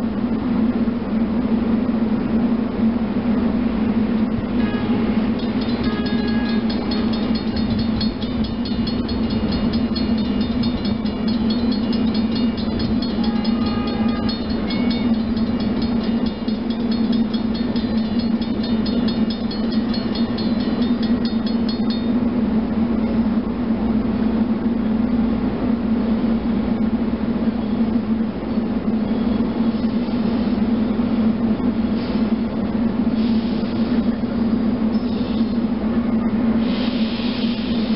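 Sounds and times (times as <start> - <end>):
railroad crossing bell ringing: 4.6 - 22.6.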